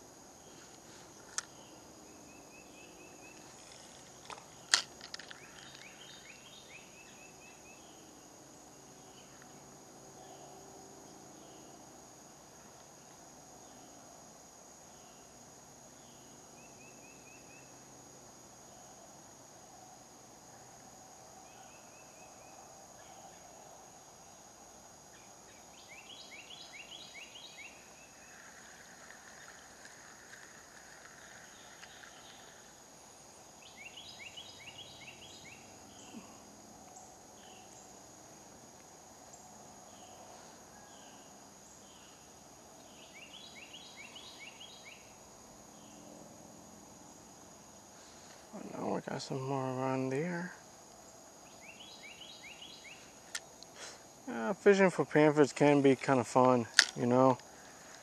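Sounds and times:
high insect drone: 0:00.0 - 0:58.0
songbird singing: 0:00.0 - 0:58.0.

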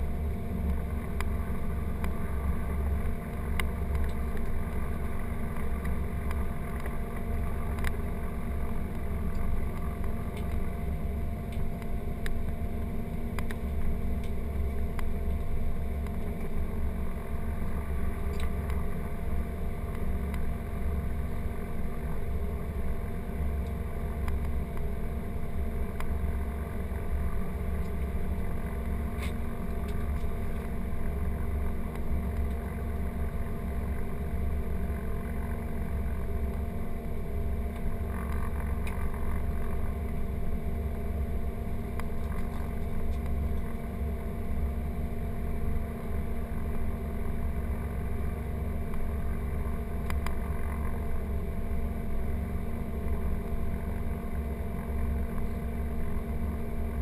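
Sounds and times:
aircraft engines idling: 0:00.0 - 0:57.0.

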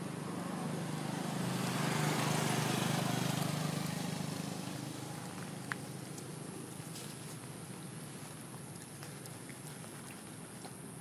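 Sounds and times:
vehicle engine running: 0:00.0 - 0:08.0.

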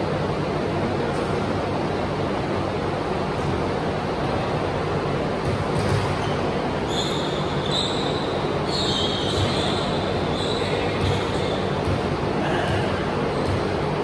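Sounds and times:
floor fans rushing: 0:00.0 - 0:14.0
sneaker squeaks on hardwood: 0:05.8 - 0:12.0.

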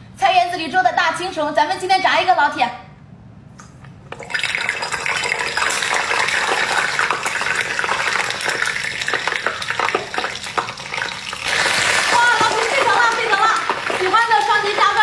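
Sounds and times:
hot oil sizzling and popping: 0:04.1 - 0:15.0.

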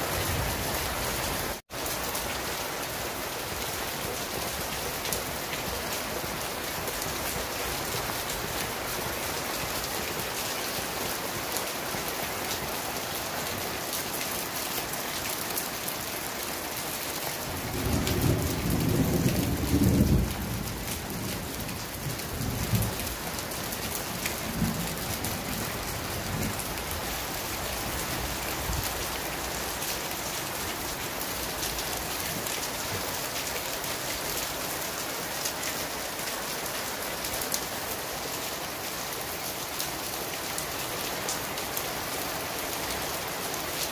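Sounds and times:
heavy rain on leaves: 0:00.0 - 0:43.9
thunder rumbling: 0:17.6 - 0:23.2.

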